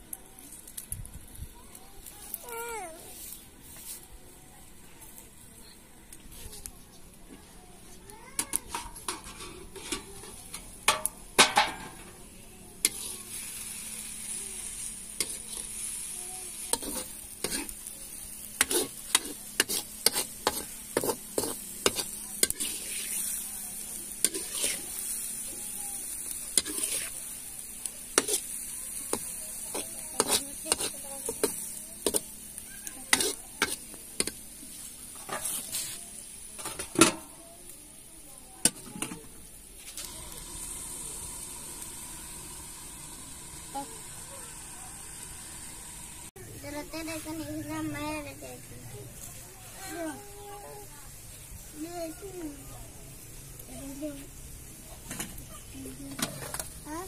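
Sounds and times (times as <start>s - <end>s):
food sizzling: 0.0s - 57.0s
metal spatula scraping a pan: 8.4s - 12.1s, 12.8s - 13.2s, 15.2s - 15.8s, 16.7s - 17.8s, 18.5s - 23.4s, 24.2s - 25.0s, 26.5s - 27.2s, 28.1s - 32.2s, 32.8s - 34.4s, 35.1s - 36.0s.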